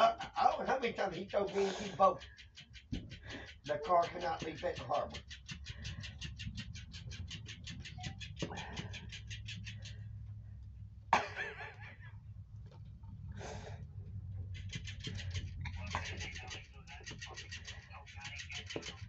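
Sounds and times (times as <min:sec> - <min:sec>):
toy fish tail flapping ticks: 0:00.0 - 0:10.2, 0:14.5 - 0:19.0.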